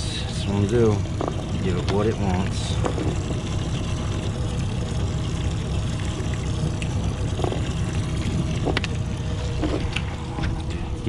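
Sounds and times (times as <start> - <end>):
faint steady hum: 0.0 - 11.0
water and boat rumble: 0.0 - 11.0.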